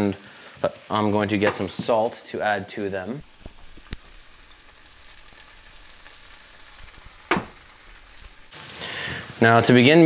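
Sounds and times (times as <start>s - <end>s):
crickets sizzling in hot oil: 0.0s - 9.8s
sharp knock: 7.3s - 7.5s.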